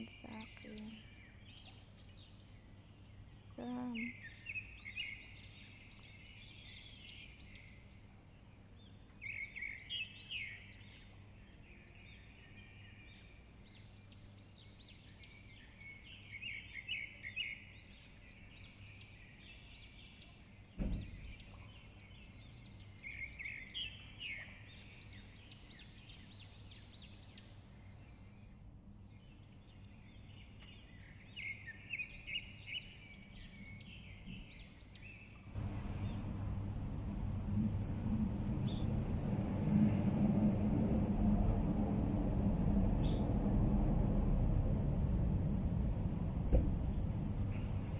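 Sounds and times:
birds chirping: 0:00.0 - 0:17.6, 0:18.3 - 0:47.9
dull thump: 0:20.8 - 0:21.2, 0:46.3 - 0:47.8
steady low hum: 0:35.6 - 0:47.9.

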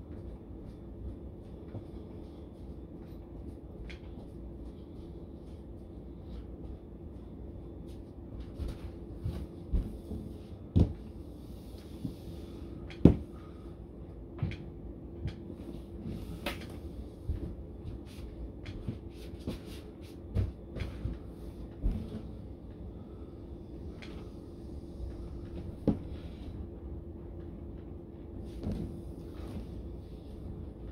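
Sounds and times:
faint steady hum: 0:00.0 - 0:30.9
feet striking floor: 0:17.2 - 0:22.2.

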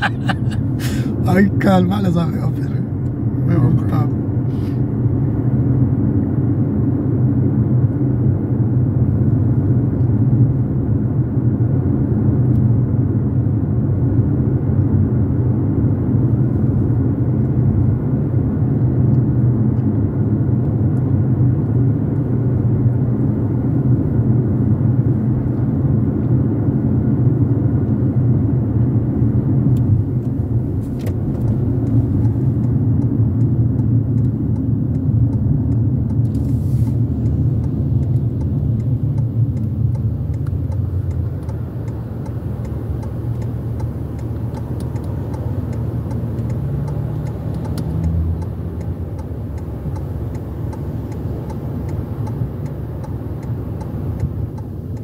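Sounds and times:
car interior driving rumble: 0:00.0 - 0:55.0.

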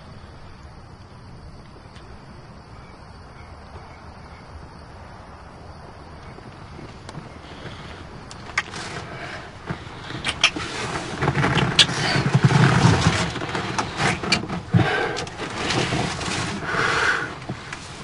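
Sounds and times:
rustle of clothing: 0:06.7 - 0:18.0
wet lip smacks: 0:08.5 - 0:08.7.

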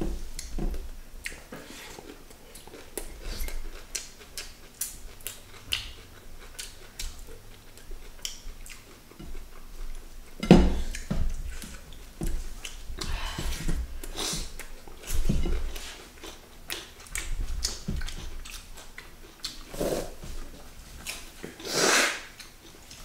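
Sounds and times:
chewing and lip smacks: 0:01.2 - 0:13.1, 0:14.0 - 0:19.7, 0:20.4 - 0:21.6, 0:22.2 - 0:23.0.

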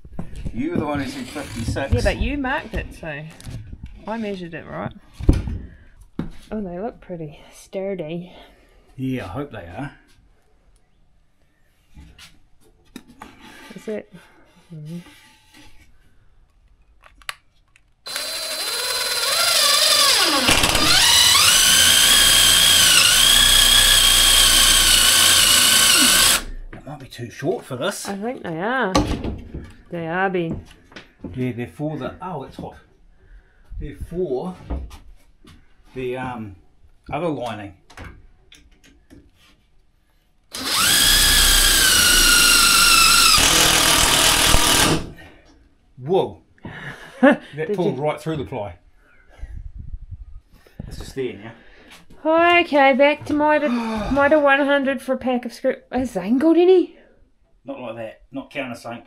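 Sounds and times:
power drill whining: 0:00.9 - 0:02.1, 0:18.1 - 0:26.6, 0:40.5 - 0:45.2.

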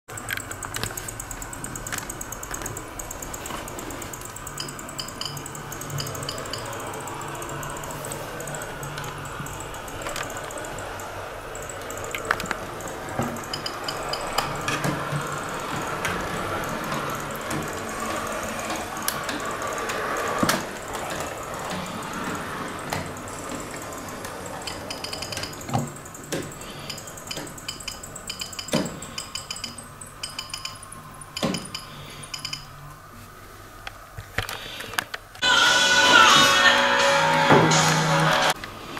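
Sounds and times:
metallic clicks of wheels on rails: 0:00.1 - 0:32.8
model train running hum: 0:00.2 - 0:28.4.

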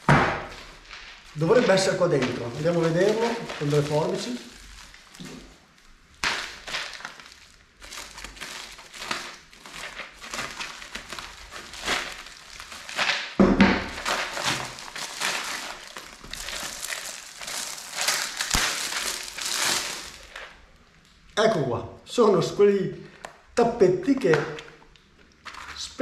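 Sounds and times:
plastic bag rustling: 0:00.0 - 0:21.1, 0:24.1 - 0:26.0
plastic mailer bag crinkling: 0:00.0 - 0:21.1, 0:24.1 - 0:25.9
thump: 0:13.4 - 0:14.0.

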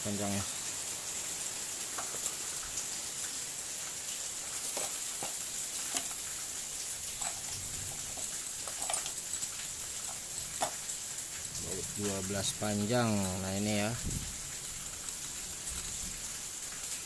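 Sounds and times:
steady high hiss: 0:00.0 - 0:17.0
plastic bag rustling: 0:01.9 - 0:02.6, 0:04.4 - 0:10.9
small metal parts clicking: 0:04.6 - 0:06.4, 0:07.0 - 0:11.0.

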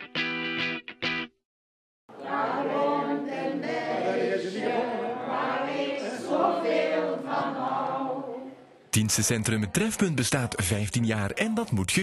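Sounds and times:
group singing unaccompanied: 0:02.1 - 0:10.8.

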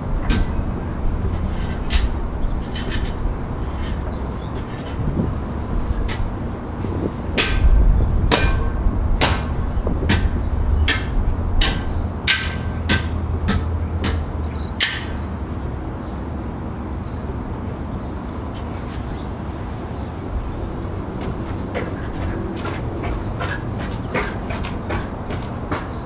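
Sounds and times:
steady low rumble: 0:00.0 - 0:25.8.

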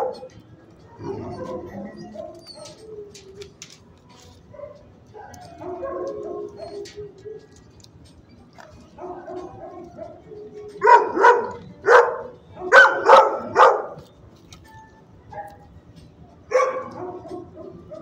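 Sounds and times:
dog barking: 0:00.0 - 0:00.3, 0:04.5 - 0:07.0, 0:09.0 - 0:14.0, 0:15.3 - 0:15.7, 0:16.5 - 0:18.0.

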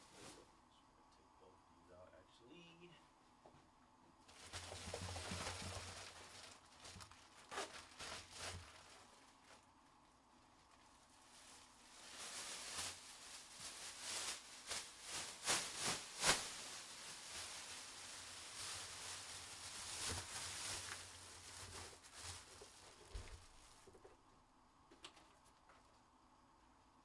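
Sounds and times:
rustling handling noise: 0:04.2 - 0:24.3.

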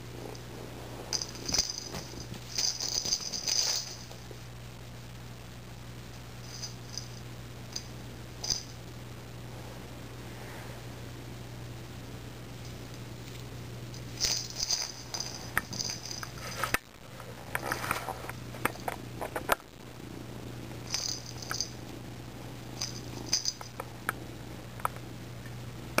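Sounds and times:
kitten purring: 0:00.0 - 0:04.4.

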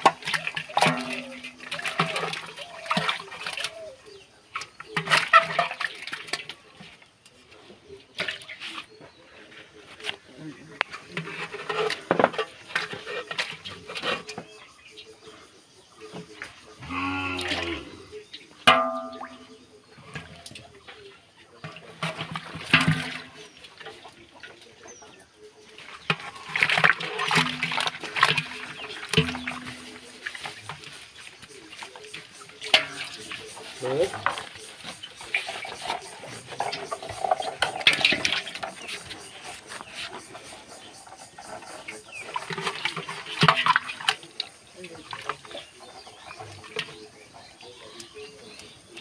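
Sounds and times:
metal clattering on metal: 0:00.0 - 0:03.2, 0:18.6 - 0:20.4, 0:21.6 - 0:24.0, 0:26.0 - 0:44.5
water pouring into metal basin: 0:00.0 - 0:06.8, 0:21.6 - 0:24.6, 0:25.7 - 0:39.9, 0:41.0 - 0:47.0
water sloshing and splashing: 0:00.0 - 0:15.3, 0:17.4 - 0:49.0.

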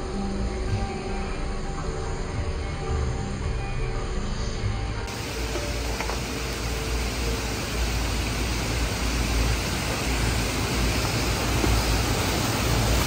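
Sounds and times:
stream rushing over rocks: 0:05.1 - 0:13.0.

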